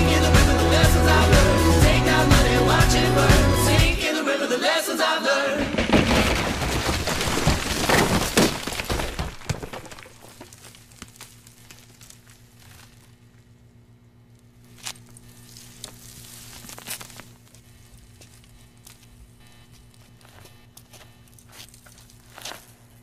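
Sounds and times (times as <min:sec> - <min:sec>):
glass cracking and shattering: 0:05.6 - 0:12.8
faint low hum: 0:09.1 - 0:23.0.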